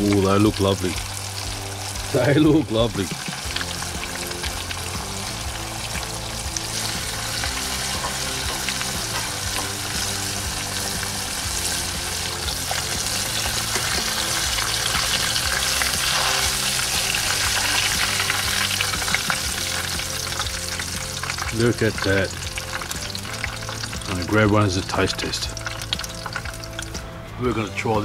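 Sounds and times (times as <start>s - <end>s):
oil sizzling while deep-frying: 0.0s - 28.0s
ladle stirring through oil: 3.0s - 24.8s
wire-mesh strainer stirring oil: 12.4s - 19.1s.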